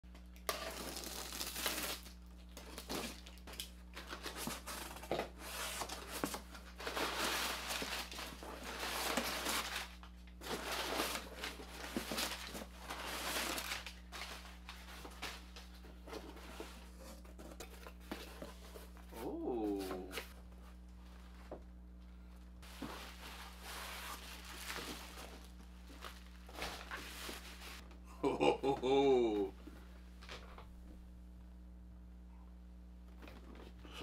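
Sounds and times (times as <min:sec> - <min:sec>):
packing tape tearing off cardboard: 0:00.5 - 0:15.7
cardboard and packing material rustling: 0:00.5 - 0:21.6, 0:22.6 - 0:27.8.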